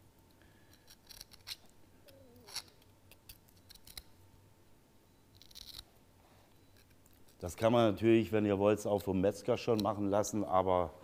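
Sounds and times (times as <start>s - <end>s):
knife tip scratching: 0.7s - 4.1s, 5.3s - 5.9s, 6.7s - 7.6s.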